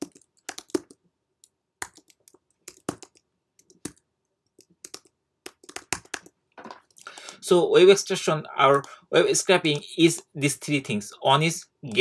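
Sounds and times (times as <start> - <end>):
keyboard typing: 0.0 - 7.4, 9.6 - 10.4.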